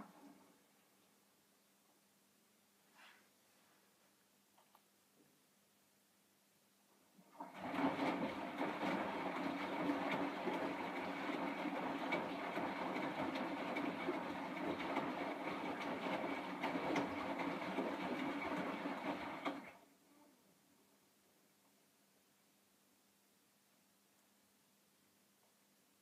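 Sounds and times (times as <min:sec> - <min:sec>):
washing machine drum motor: 0:07.4 - 0:19.8.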